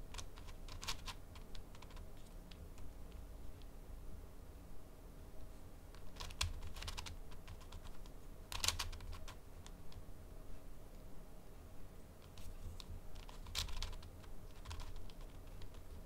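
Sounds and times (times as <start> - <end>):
puzzle cube layers clicking: 6.0 - 10.0, 12.2 - 16.0.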